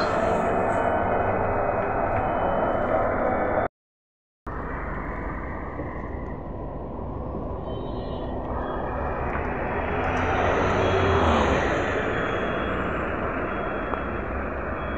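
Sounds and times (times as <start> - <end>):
street noise: 0.0 - 3.7, 4.5 - 14.9
trolleybus pulling away: 9.0 - 14.9.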